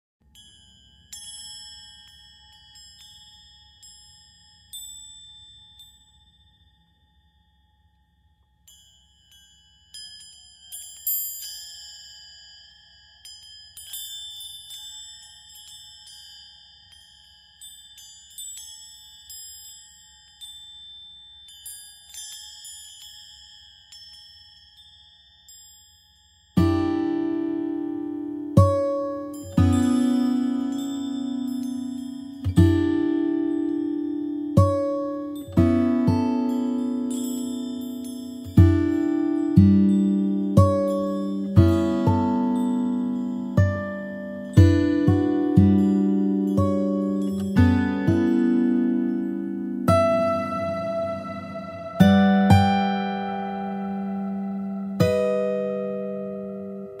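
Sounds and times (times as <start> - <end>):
high bell-like chime notes: 26.6 - 57.0.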